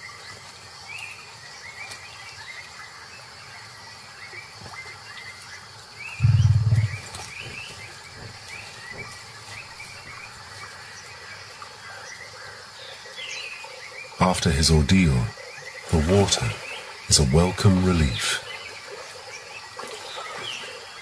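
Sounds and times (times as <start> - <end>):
short rising chirps: 6.2 - 7.1.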